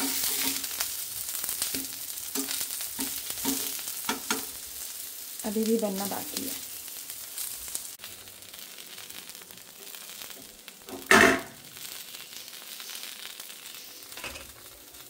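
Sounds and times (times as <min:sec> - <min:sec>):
eggplant slices sizzling in oil: 0:00.0 - 0:15.0.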